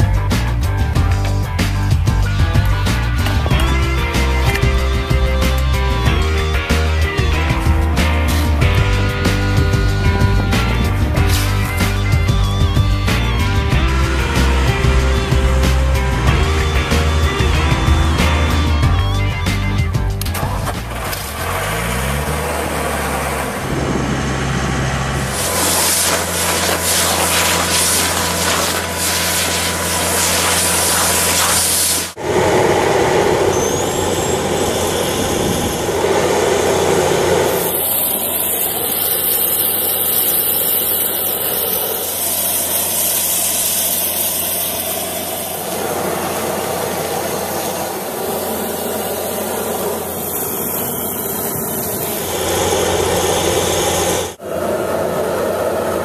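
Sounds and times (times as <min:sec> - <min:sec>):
engine droning: 0:00.0 - 0:56.0
rushing hiss of air suction: 0:25.2 - 0:55.3.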